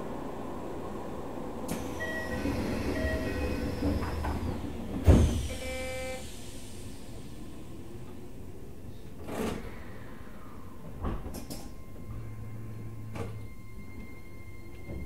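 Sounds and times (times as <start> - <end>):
train doors hissing: 1.7 - 7.8.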